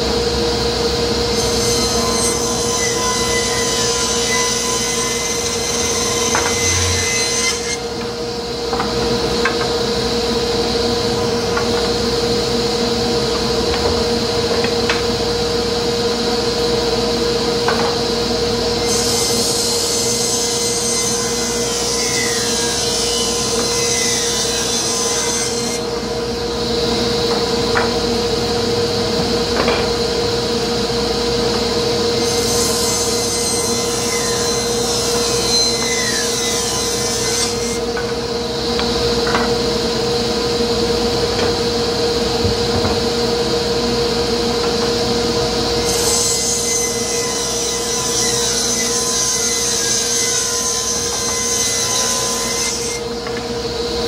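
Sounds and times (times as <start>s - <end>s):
table saw ripping wood: 1.4s - 8.1s.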